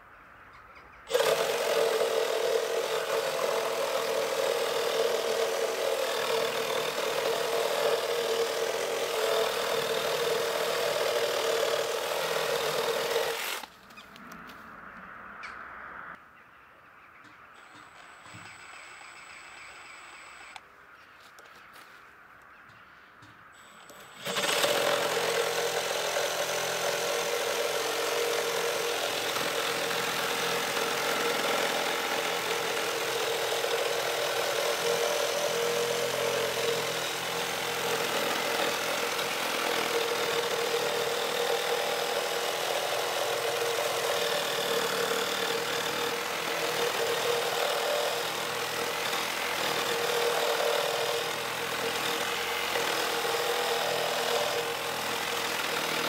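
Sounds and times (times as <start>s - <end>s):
reciprocating saw cutting wood: 1.1s - 13.7s, 23.8s - 56.0s.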